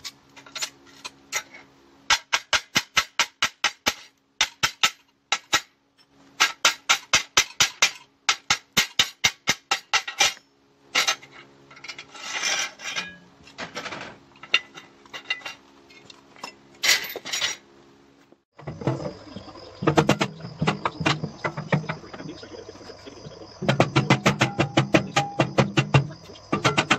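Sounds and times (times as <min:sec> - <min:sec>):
steel plates scraping and clanking: 0:00.0 - 0:01.7, 0:09.8 - 0:17.6
hammer striking ringing steel plate: 0:23.7 - 0:26.0.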